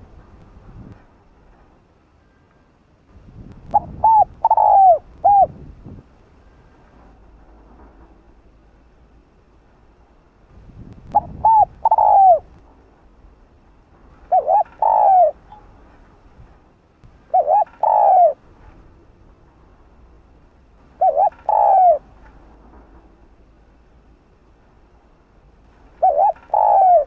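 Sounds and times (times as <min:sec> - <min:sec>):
dove cooing: 0:03.7 - 0:05.6, 0:11.1 - 0:12.5, 0:14.2 - 0:15.5, 0:17.3 - 0:18.4, 0:20.9 - 0:22.2, 0:26.0 - 0:27.0.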